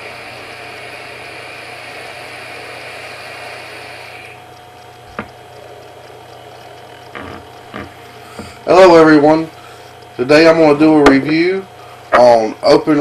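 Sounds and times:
e-cigarette hissing and sizzling: 0:00.0 - 0:04.4, 0:07.0 - 0:08.8
sharp click: 0:04.6 - 0:05.4.

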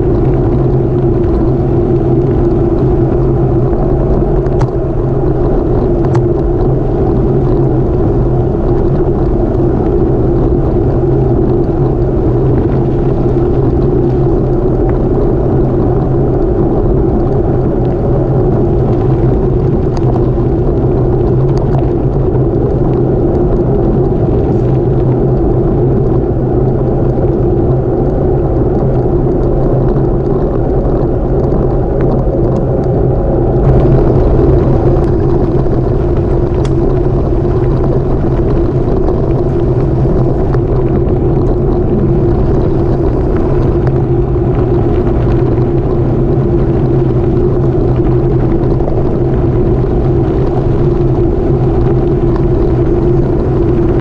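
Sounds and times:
bicycle tyres on gravel: 0:00.0 - 0:54.0
wind rush: 0:00.0 - 0:54.0.

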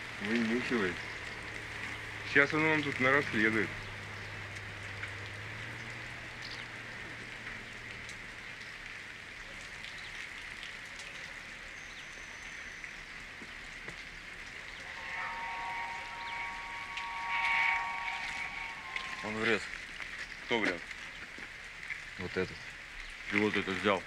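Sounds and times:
even outdoor hiss: 0:00.0 - 0:24.0
low hum: 0:14.4 - 0:20.4.

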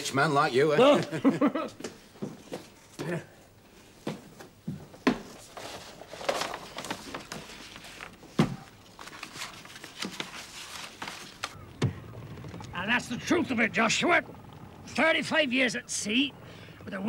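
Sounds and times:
shuffling and rustling: 0:03.8 - 0:12.7
sharp knocks and thuds: 0:11.8 - 0:12.7.

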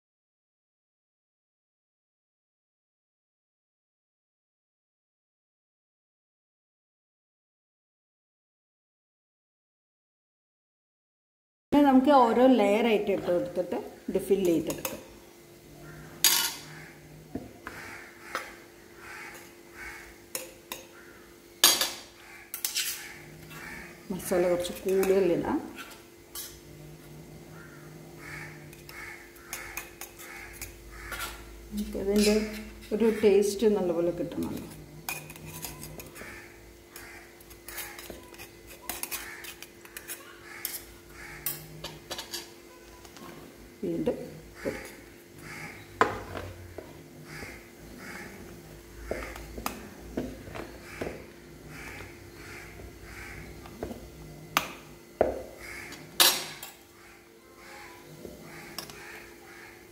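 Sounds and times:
spoon clinking and scraping metal: 0:21.6 - 0:23.6, 0:24.3 - 0:26.6, 0:34.4 - 0:36.3, 0:36.9 - 0:42.6.

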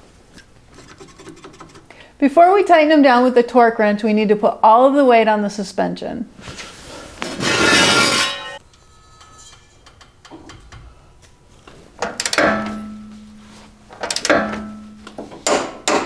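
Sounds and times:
jack stand scraping: 0:07.2 - 0:11.0.

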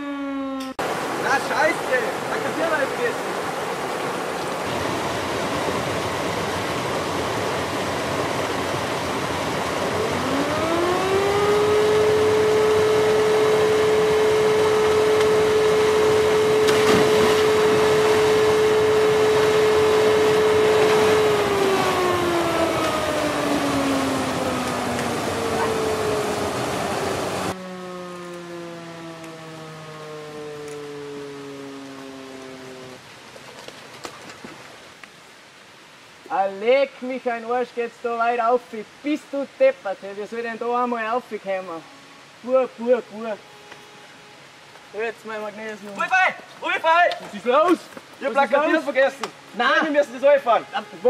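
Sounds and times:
stream and waterfall rushing: 0:00.8 - 0:33.6, 0:34.4 - 0:51.0
fire alarm siren: 0:09.9 - 0:33.0.

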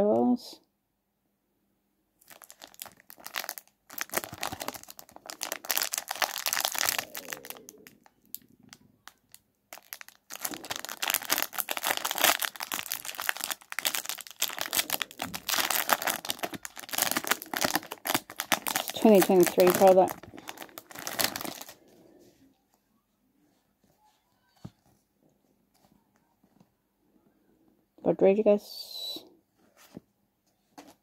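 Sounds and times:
foil wrapper crinkling and tearing: 0:02.2 - 0:21.9.

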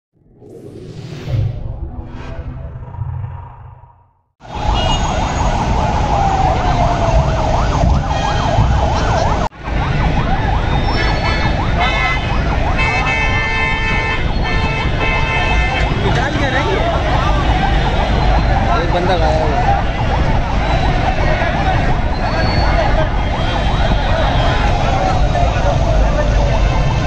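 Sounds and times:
intro jingle: 0:00.2 - 0:04.1
emergency sirens yelping: 0:04.4 - 0:14.5, 0:15.4 - 0:27.0
street and crowd noise: 0:04.4 - 0:27.0.

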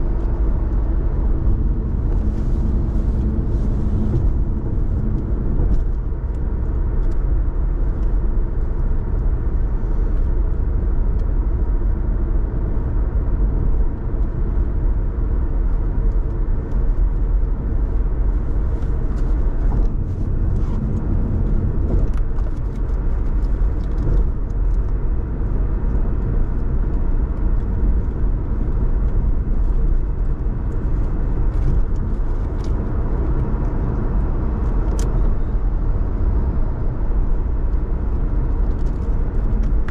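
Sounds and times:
car road and engine rumble: 0:00.0 - 0:39.9.

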